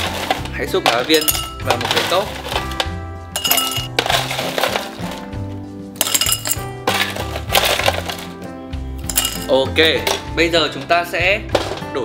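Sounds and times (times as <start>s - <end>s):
ice cubes clinking in glass: 0.0s - 2.7s, 3.4s - 5.1s, 6.0s - 8.3s, 9.0s - 9.6s
background music: 0.0s - 12.0s.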